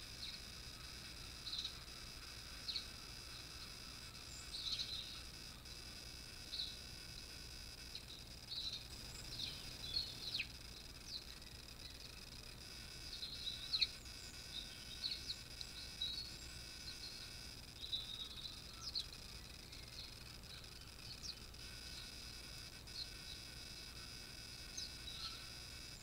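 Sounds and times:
faint steady hiss: 0.0s - 26.0s
small birds chirping: 0.0s - 26.0s.

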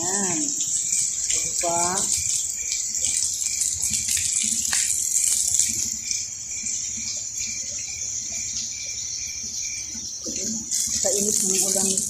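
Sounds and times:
faint high chirp: 6.0s - 11.2s.

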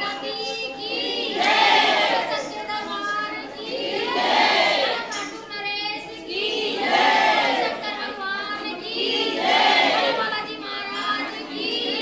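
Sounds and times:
group chanting: 1.0s - 2.4s, 3.7s - 5.1s, 6.3s - 8.1s, 8.7s - 10.3s.

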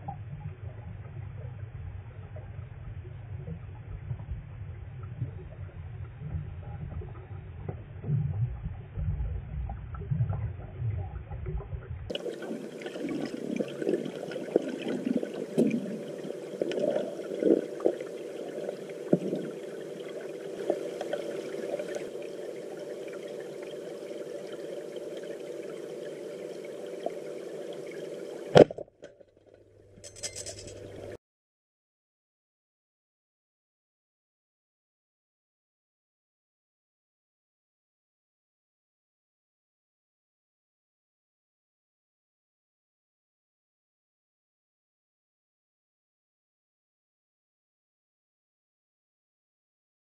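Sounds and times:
underwater water rumble: 0.0s - 28.8s
underwater hiss with crackling: 12.1s - 28.6s.

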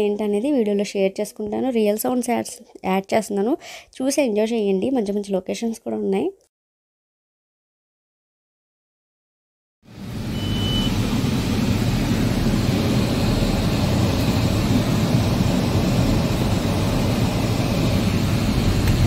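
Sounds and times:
car engine and road rumble: 9.9s - 19.0s
short high beep: 10.3s - 11.0s.

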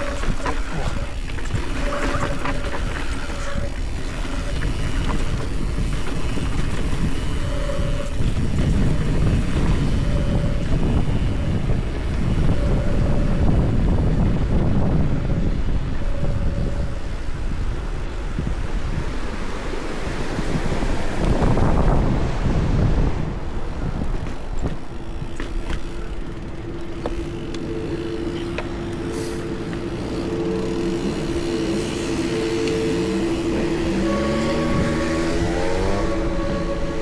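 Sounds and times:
bike tyres rumbling: 0.0s - 37.0s
wind buffeting microphone: 0.0s - 37.0s.

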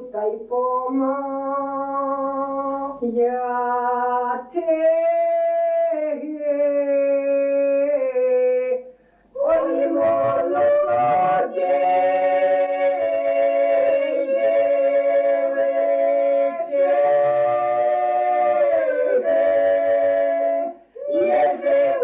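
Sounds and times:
voices singing folk song: 0.0s - 22.0s.

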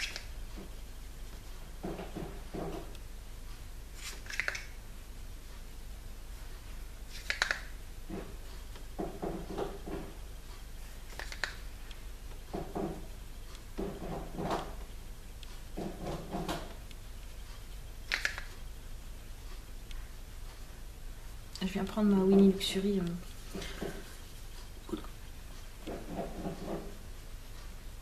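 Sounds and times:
make-up brush rubbing skin: 23.1s - 24.8s.

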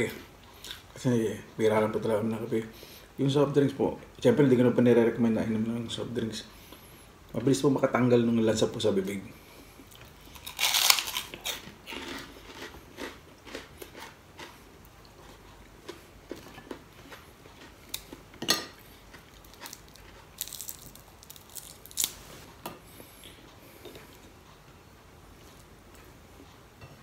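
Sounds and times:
person chewing crunchy food: 9.8s - 22.3s.

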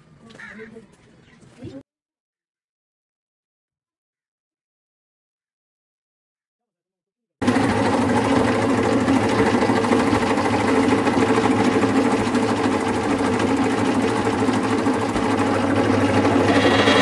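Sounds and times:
hydraulic press humming: 7.4s - 17.0s.

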